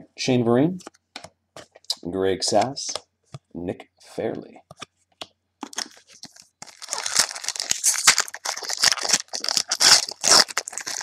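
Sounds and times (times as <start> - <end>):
foil pack tearing and crinkling: 5.7 - 11.0.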